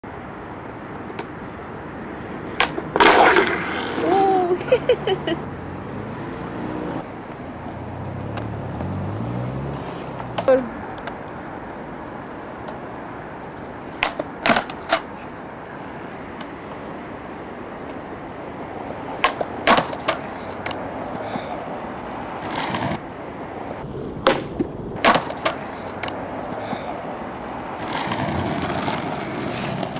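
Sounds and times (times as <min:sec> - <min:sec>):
skateboard wheels rolling on concrete: 0:00.0 - 0:29.9
skateboard clacking: 0:00.6 - 0:04.6, 0:13.4 - 0:29.9.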